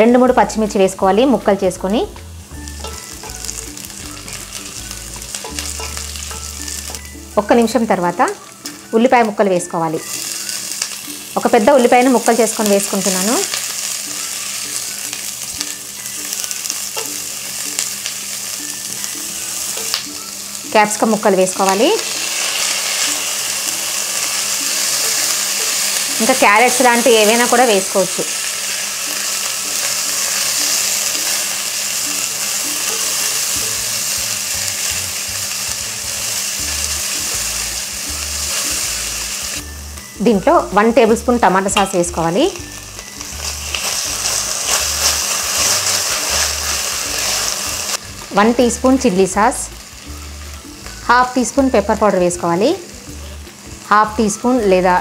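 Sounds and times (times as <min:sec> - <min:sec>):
soft background music: 0:00.0 - 0:55.0
vegetables sizzling in hot oil: 0:00.0 - 0:55.0
spatula scraping a pan: 0:43.2 - 0:48.0.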